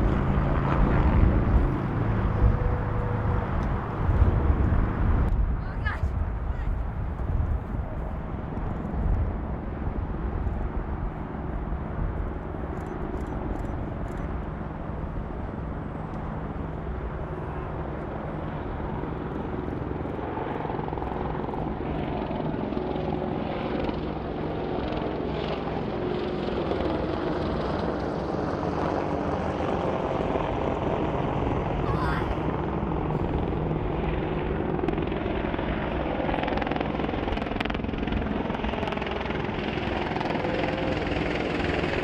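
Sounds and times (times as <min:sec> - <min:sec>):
helicopters humming: 0:00.0 - 0:42.0.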